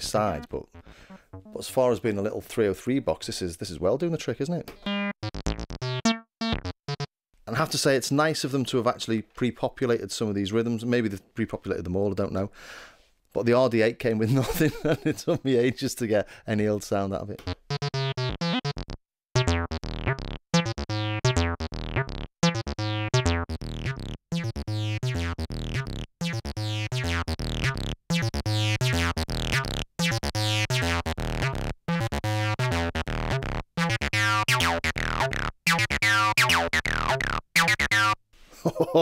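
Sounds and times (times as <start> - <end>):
distorted acid bass synthesizer: 0.1 - 1.6, 4.8 - 7.1, 17.4 - 38.2.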